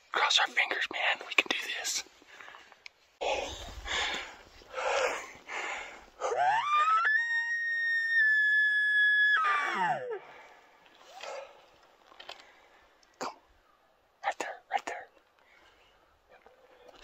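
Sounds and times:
breathy puffs: 2.4 - 6.4.

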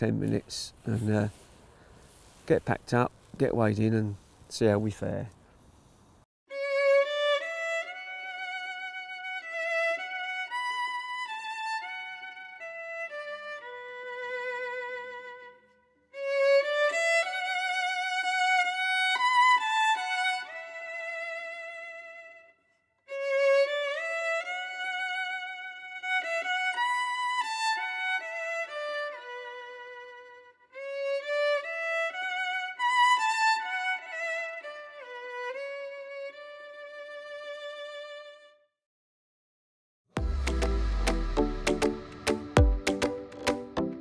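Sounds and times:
solo fiddle melody: 6.5 - 38.7.

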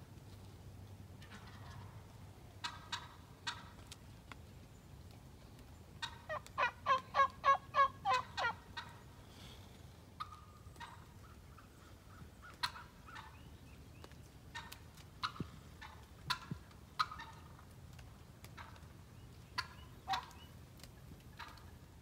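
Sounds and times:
turkey calling: 1.2 - 2.0, 2.6 - 3.8, 6.0 - 9.2, 10.2 - 17.7, 18.4 - 21.9.

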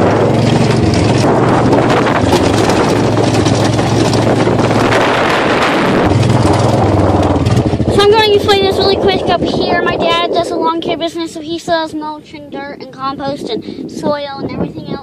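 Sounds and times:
golf cart motor droning: 0.0 - 10.3
wind noise on microphone: 0.0 - 15.0.

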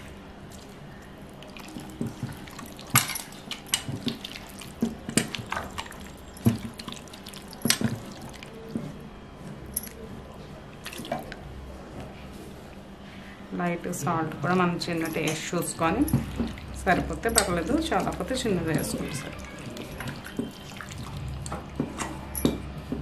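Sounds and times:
hands squelching chicken in marinade: 0.5 - 8.8, 16.3 - 21.5.

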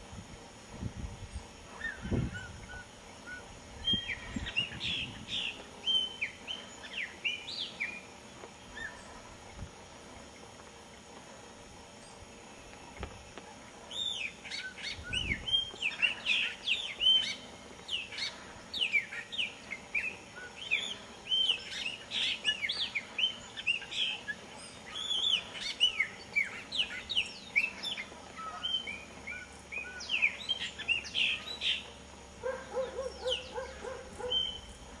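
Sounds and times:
blackbird singing whistled notes: 1.8 - 8.0, 13.9 - 31.9, 32.6 - 34.8.

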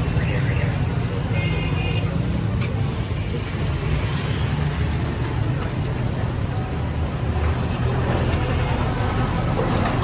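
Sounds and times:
low rumble of street noise: 0.0 - 10.0.

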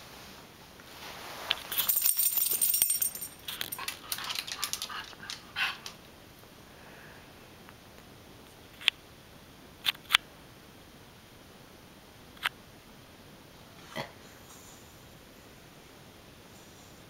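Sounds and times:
dog collar tags jingling: 1.7 - 5.4
dog claws clicking on wood floor: 1.8 - 6.0.

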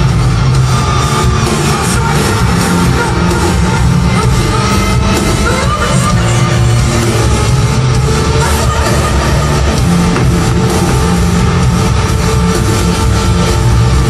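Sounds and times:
band playing loudly: 0.0 - 14.0
crowd noise: 0.0 - 14.0
woman singing into a microphone: 5.4 - 6.9.

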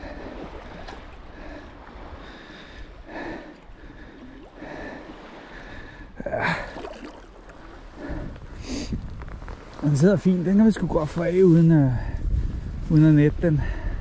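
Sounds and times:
seawater splashing: 0.0 - 8.2
wind rumble on microphone: 7.6 - 14.0.

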